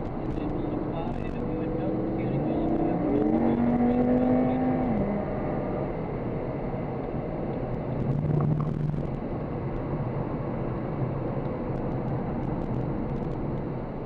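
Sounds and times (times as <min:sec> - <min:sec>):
car engine accelerating: 0:00.0 - 0:09.3
road and tyre noise: 0:00.0 - 0:14.0.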